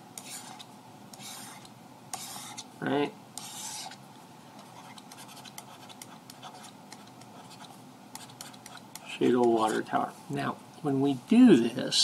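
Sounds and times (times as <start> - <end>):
stylus scratching on pen tablet: 0.2 - 2.7, 3.4 - 4.0, 4.6 - 9.9.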